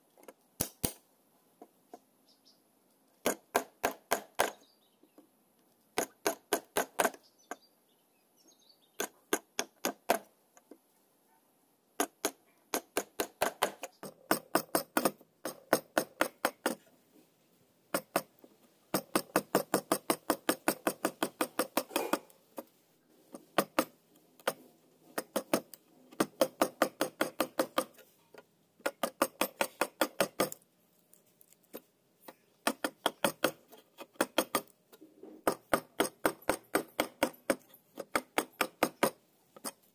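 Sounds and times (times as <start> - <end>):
chisel cutting wood: 6.0 - 7.2, 12.0 - 16.8, 18.9 - 22.4, 23.3 - 24.6, 25.2 - 28.0, 28.8 - 30.6, 32.6 - 34.7, 35.4 - 39.8.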